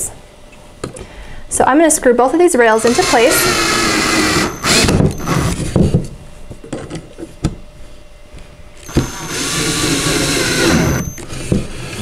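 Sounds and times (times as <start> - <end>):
drill motor whining: 2.6 - 5.8, 8.8 - 11.3.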